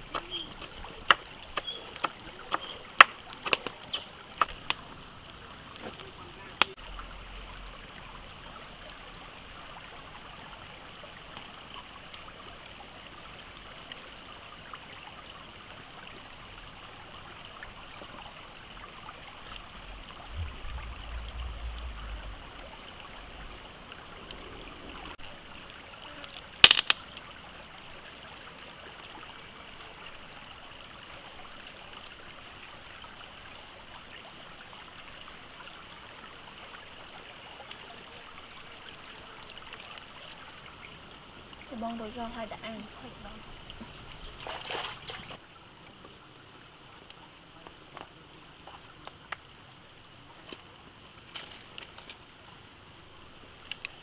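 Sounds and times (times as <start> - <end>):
stream rushing: 15.3 - 26.7.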